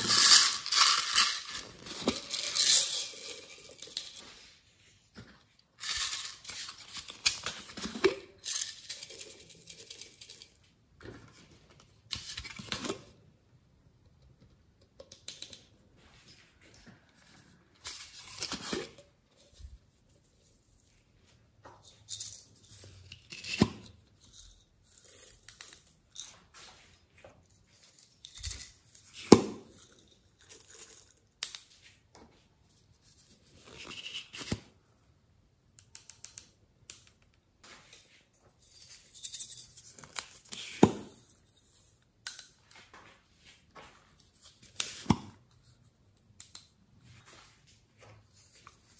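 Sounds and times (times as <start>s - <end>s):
sequins rustling into glass dish: 0.0s - 4.6s.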